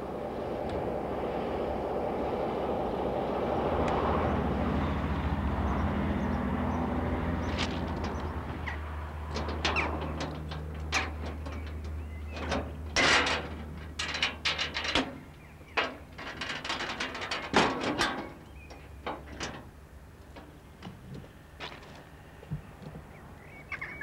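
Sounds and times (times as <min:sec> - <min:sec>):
low engine hum: 0:00.0 - 0:24.0
clicks and metallic clanks: 0:09.3 - 0:20.9.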